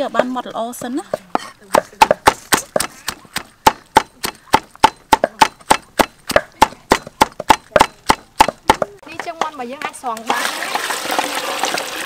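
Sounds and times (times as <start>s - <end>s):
cleaver chopping on wooden board: 0.8s - 10.0s.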